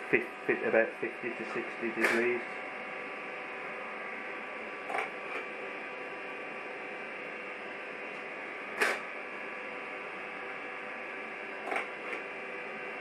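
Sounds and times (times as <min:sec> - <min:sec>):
coffee roaster whirring: 0:00.0 - 0:13.0.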